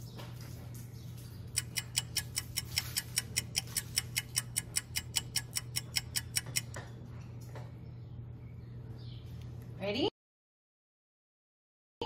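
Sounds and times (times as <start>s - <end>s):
clock ticking: 1.6s - 6.8s.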